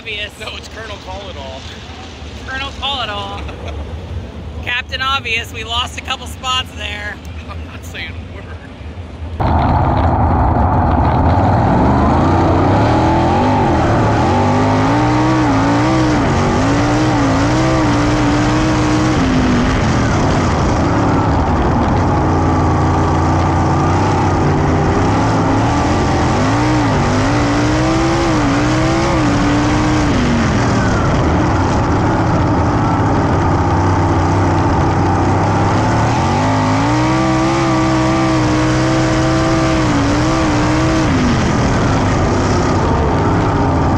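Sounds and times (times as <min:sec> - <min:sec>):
racing engine running hard: 0:09.4 - 0:43.9.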